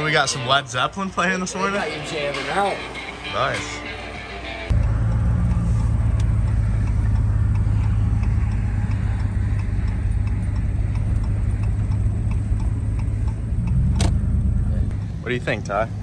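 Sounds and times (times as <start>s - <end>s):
truck engine low rumble: 4.7s - 16.0s
turn signal ticking: 4.7s - 16.0s.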